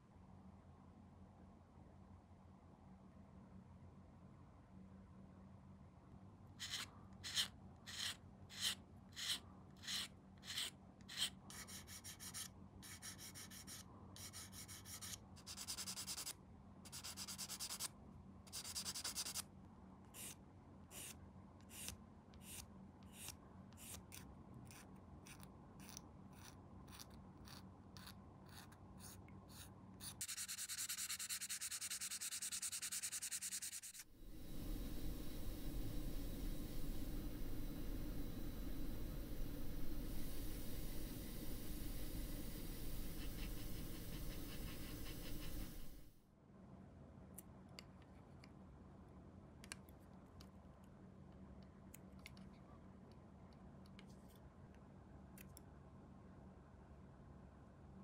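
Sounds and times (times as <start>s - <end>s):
sanding plastic by hand: 18.5s - 19.4s, 30.1s - 34.1s, 42.8s - 46.1s.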